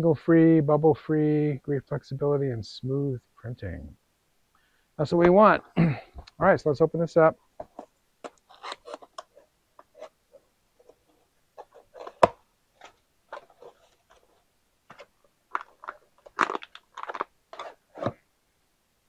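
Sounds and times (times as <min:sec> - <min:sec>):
plastic bag crinkling: 0:12.8 - 0:17.8.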